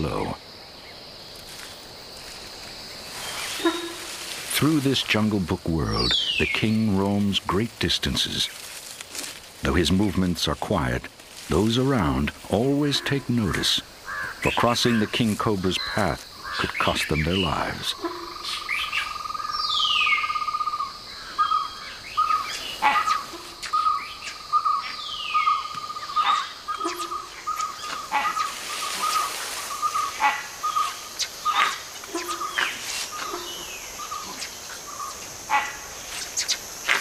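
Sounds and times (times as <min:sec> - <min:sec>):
birds chirping in alarm: 0:02.9 - 0:07.2, 0:12.0 - 0:37.0.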